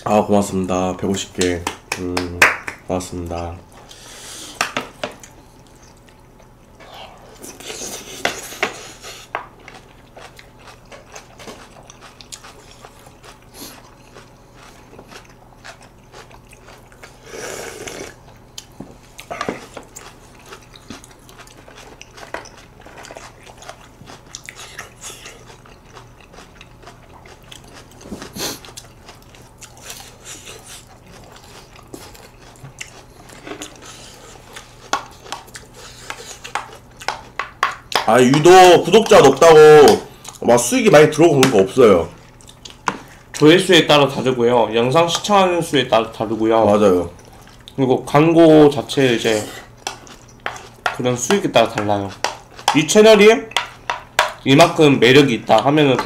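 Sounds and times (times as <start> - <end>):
chewing and biting food: 5.1 - 17.2, 17.8 - 40.6, 42.1 - 43.5, 47.1 - 47.8, 48.8 - 54.5.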